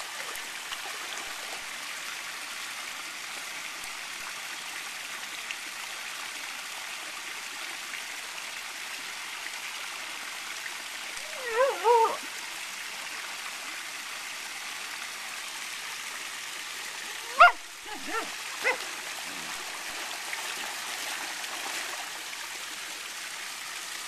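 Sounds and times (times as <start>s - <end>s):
fountain water splashing: 0.0s - 24.0s
brief wavering call: 11.3s - 12.2s.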